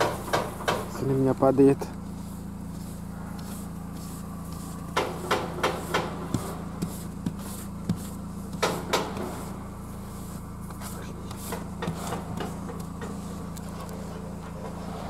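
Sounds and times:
car engine idling: 0.0s - 15.0s
snow brush knocking on car window: 2.1s - 13.5s.

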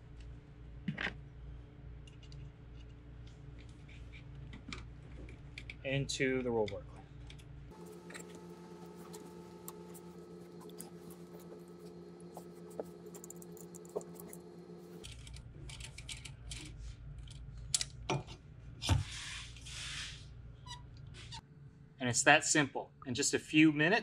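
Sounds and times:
steady hum: 7.7s - 15.1s.

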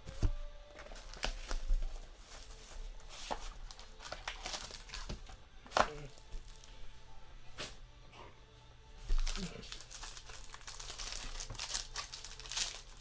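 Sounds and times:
cardboard rustling: 0.0s - 6.7s
plastic wrapping crinkling and tearing: 0.1s - 6.8s, 9.0s - 13.0s.

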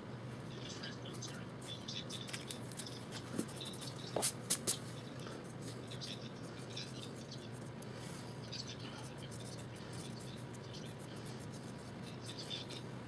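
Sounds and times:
pencil scratching on paper: 2.8s - 4.8s, 8.5s - 12.8s.

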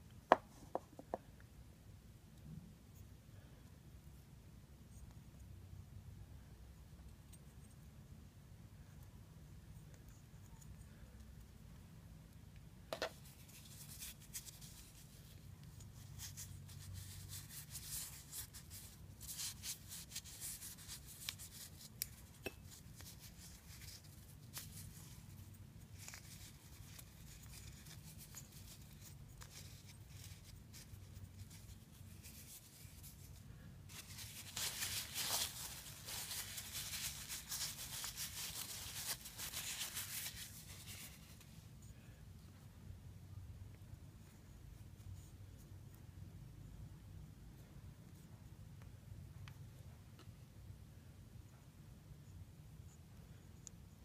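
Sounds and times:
cloth rag rubbing metal gear: 13.2s - 41.5s.

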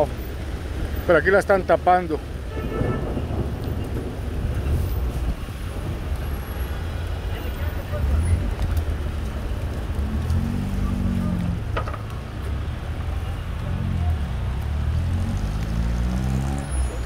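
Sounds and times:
low traffic rumble: 0.0s - 17.0s
car engine pulling away: 7.8s - 17.0s.

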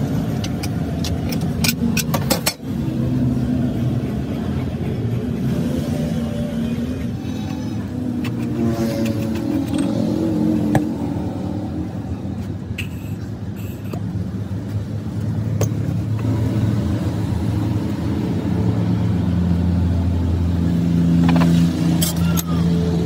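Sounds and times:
low engine drone: 0.0s - 23.0s.

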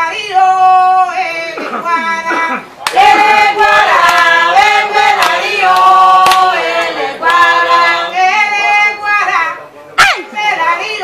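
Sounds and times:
sharp claps: 2.8s - 3.1s, 4.0s - 4.3s, 5.2s - 7.4s
voices chanting together: 2.8s - 9.1s.

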